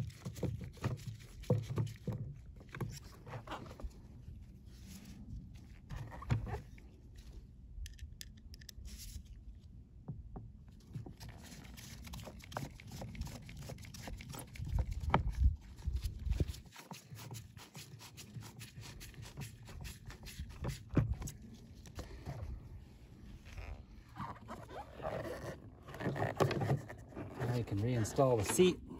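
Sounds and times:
screwdriver clicks and creaks: 7.8 - 8.9.

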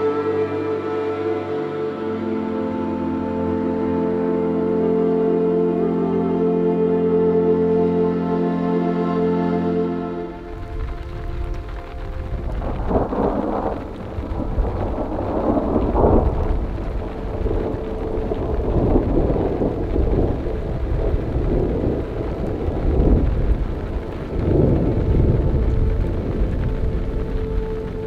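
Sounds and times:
rain falling: 0.0 - 8.2, 9.8 - 28.0
thunder rumbling: 10.3 - 28.0.

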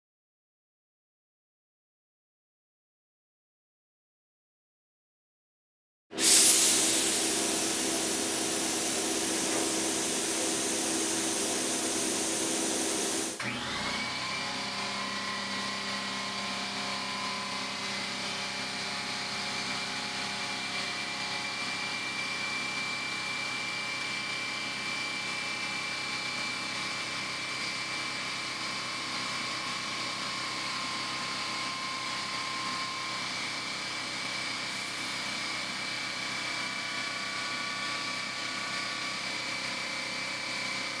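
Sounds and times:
spray gun air hissing: 6.2 - 13.4.

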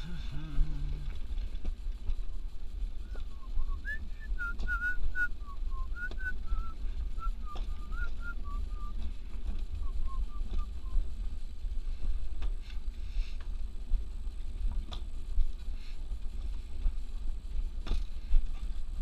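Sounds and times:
coaster sled rumbling on track: 0.0 - 19.0
person whistling a tune: 3.1 - 9.0, 9.8 - 11.0.

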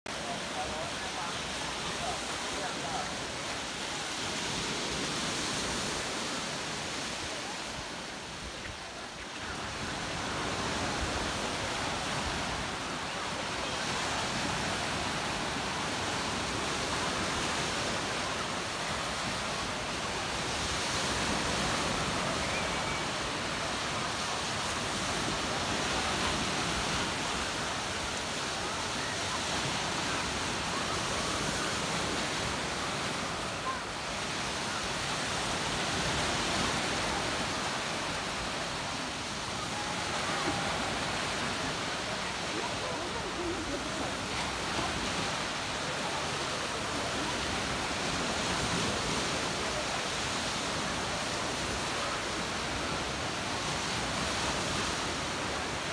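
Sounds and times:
small waves washing up beach: 0.1 - 55.9.

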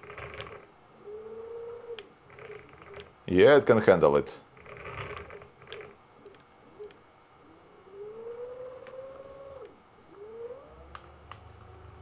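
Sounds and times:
small ticks: 0.0 - 3.1, 8.0 - 11.7
stepper motors whining: 0.0 - 3.5, 4.5 - 12.0.

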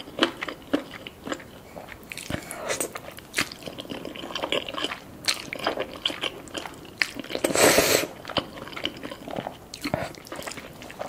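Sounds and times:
person chewing noodles: 0.0 - 11.0
loud slurp: 7.5 - 8.1.

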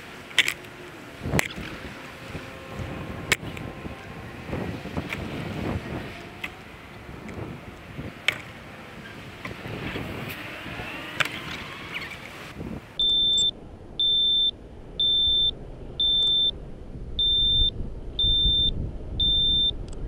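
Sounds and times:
high-pitched alarm beeps: 13.0 - 16.6, 17.2 - 19.8.

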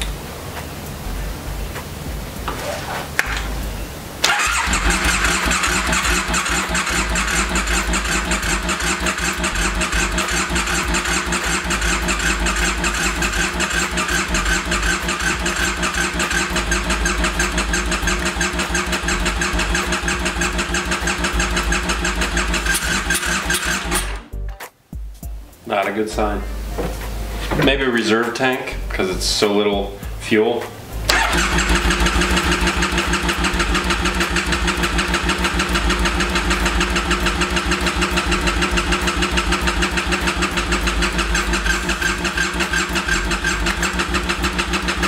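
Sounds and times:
electric starter cranking engine: 4.2 - 24.3, 31.1 - 45.0.

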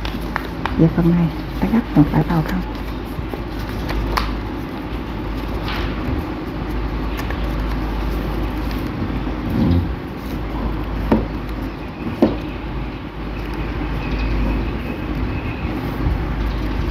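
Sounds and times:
steady low rumble: 0.0 - 11.6
paper folding and creasing: 0.0 - 11.7.

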